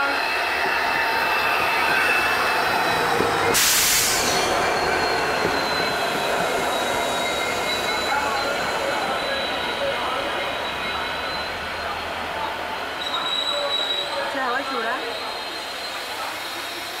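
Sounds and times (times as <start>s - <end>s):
train wheels rumbling on rails: 0.0s - 17.0s
burst of hiss: 3.5s - 4.4s
thin squealing tones: 4.1s - 12.3s.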